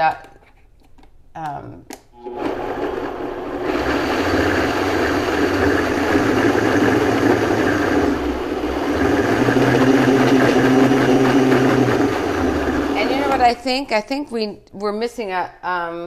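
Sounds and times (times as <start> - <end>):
blender motor whirring: 2.2 - 13.6.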